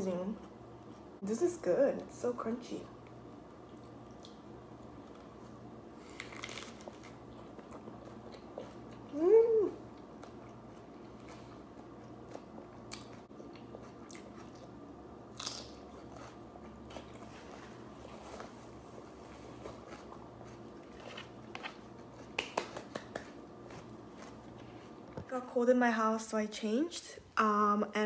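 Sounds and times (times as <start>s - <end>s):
closed-mouth hum: 0.0s - 25.4s
chewing crunchy lettuce: 3.6s - 9.2s, 9.8s - 22.4s.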